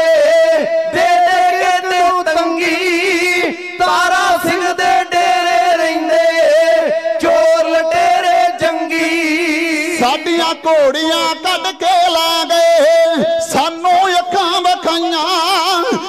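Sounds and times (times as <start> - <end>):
men singing together: 0.0 - 10.2.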